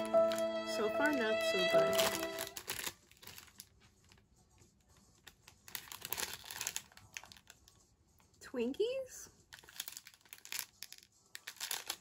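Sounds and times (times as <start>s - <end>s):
plastic wrapper crinkling: 0.0s - 4.2s, 5.0s - 7.8s, 9.5s - 12.0s.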